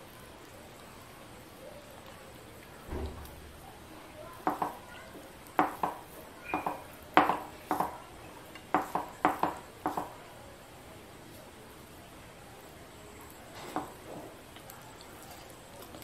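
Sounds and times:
fingers tapping and scraping plate: 0:04.4 - 0:04.8, 0:05.6 - 0:08.0, 0:08.6 - 0:10.2.

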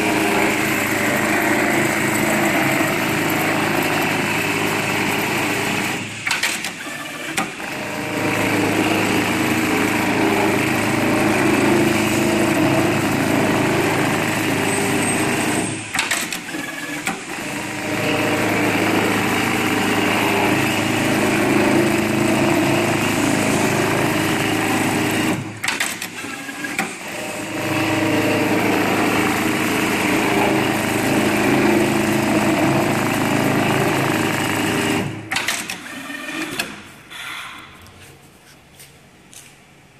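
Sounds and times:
sewing machine running: 0:00.0 - 0:36.8
sewing machine clicks: 0:35.3 - 0:36.8.

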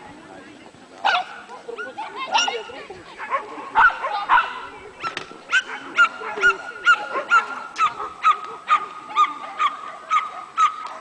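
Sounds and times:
dog barking: 0:03.2 - 0:11.0.

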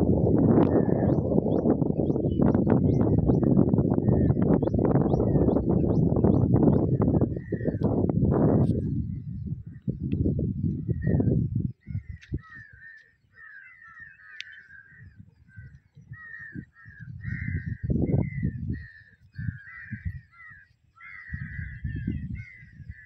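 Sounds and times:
wind rumble on microphone: 0:00.0 - 0:23.0
crows cawing: 0:12.4 - 0:21.8.

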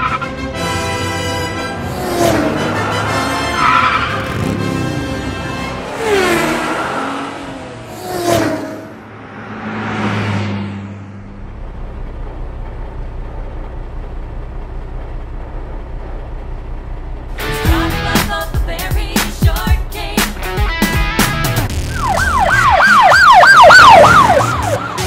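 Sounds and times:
car engine revving: 0:00.0 - 0:19.4
tyres squealing: 0:01.8 - 0:07.2.

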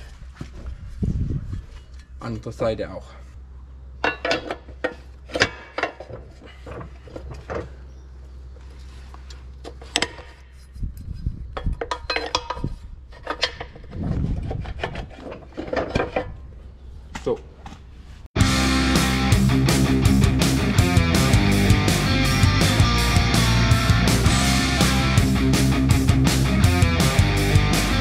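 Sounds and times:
metal clicks and scraping: 0:04.0 - 0:07.8, 0:09.2 - 0:16.5.

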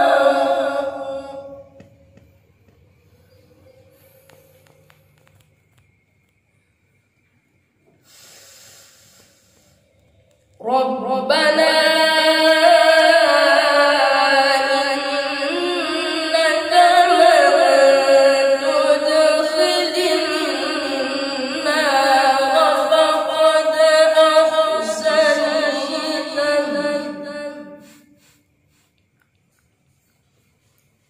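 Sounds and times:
boy chanting recitation: 0:00.0 - 0:01.9, 0:10.6 - 0:28.8.

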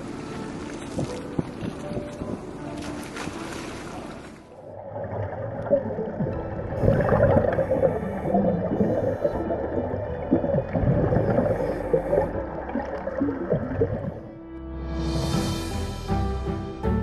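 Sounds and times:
muffled underwater bubbling: 0:04.6 - 0:14.4.

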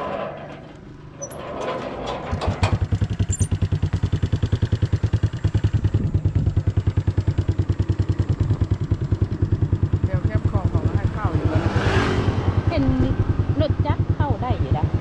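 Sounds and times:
motorbike engine putter: 0:02.5 - 0:03.7.

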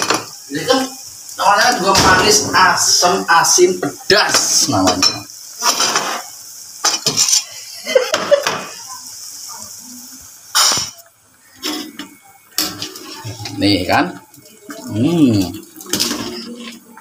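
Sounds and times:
broth simmering and bubbling: 0:00.0 - 0:17.0
ladle scraping metal wok: 0:11.6 - 0:13.5.

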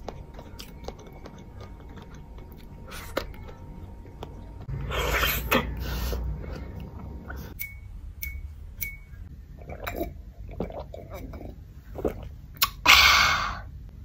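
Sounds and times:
jelly candy being chewed: 0:00.0 - 0:04.7
sipping and swallowing a drink: 0:09.6 - 0:12.8.

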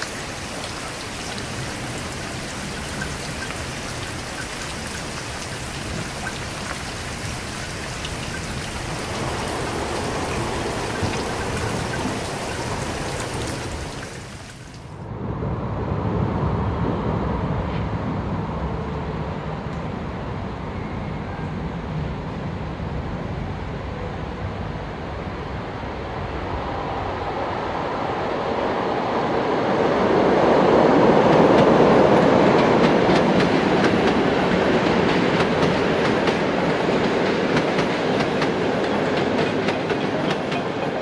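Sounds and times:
train rumbling past: 0:00.0 - 0:14.4, 0:15.0 - 0:41.0
wheels clacking over rail joints: 0:31.3 - 0:41.0.

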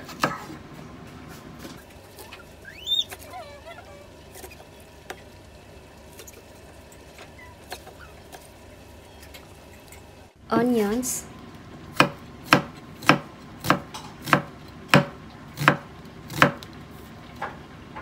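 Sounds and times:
toddler squealing: 0:02.6 - 0:04.2
toddler babbling: 0:03.2 - 0:04.2
knife chopping on wooden board: 0:12.0 - 0:16.6.

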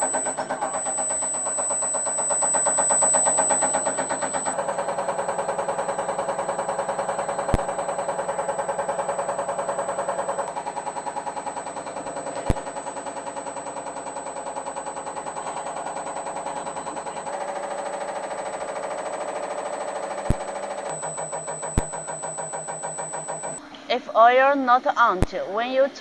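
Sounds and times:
sharp clicks: 0:00.0 - 0:04.6, 0:07.0 - 0:10.7, 0:12.3 - 0:13.0, 0:20.3 - 0:23.6
test bench mechanical pulsing: 0:00.0 - 0:23.6.

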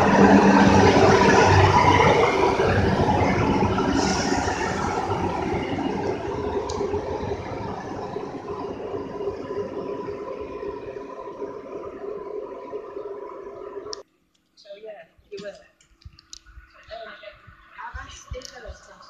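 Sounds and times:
diesel train engine and wheels rumbling: 0:00.0 - 0:14.0
air hiss: 0:03.9 - 0:05.1.

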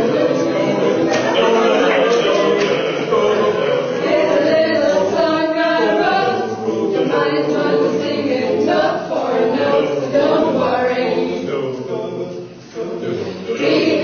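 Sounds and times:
choir singing long notes: 0:00.0 - 0:14.0.

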